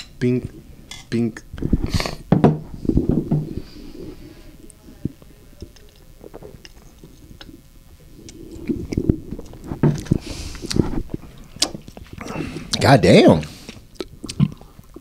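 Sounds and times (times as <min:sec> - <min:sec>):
people gulping beer: 0:02.8 - 0:12.8
mouth and lip clicks: 0:05.1 - 0:07.6, 0:08.2 - 0:12.8, 0:13.6 - 0:15.0.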